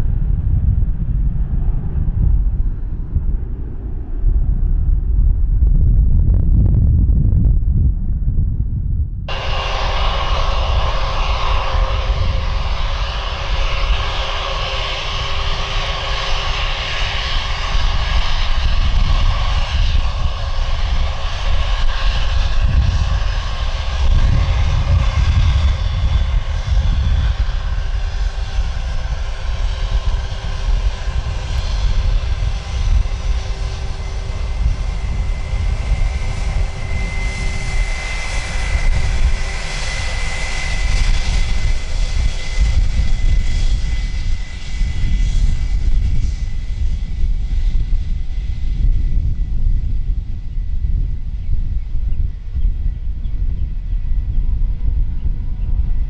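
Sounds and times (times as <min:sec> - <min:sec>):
jet engines roaring: 0:09.3 - 0:51.4
jet fan whine: 0:09.3 - 0:56.0.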